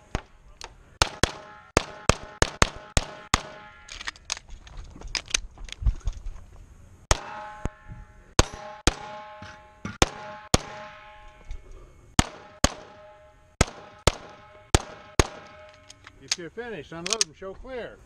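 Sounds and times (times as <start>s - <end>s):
pistol shots: 1.0s - 3.9s, 7.1s - 7.6s, 8.4s - 11.3s, 12.2s - 16.4s
metallic ringing: 7.1s - 16.3s.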